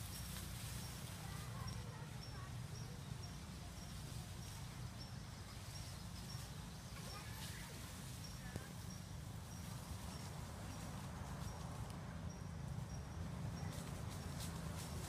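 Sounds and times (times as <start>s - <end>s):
faint scattered calls: 0.7s - 11.4s.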